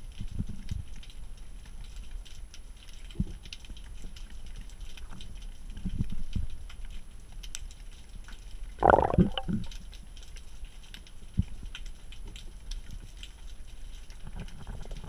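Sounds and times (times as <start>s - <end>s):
crackling clicks: 7.4s - 15.0s
low underwater rumble: 8.8s - 9.7s
bubbling gurgle: 8.8s - 9.8s, 14.2s - 15.0s.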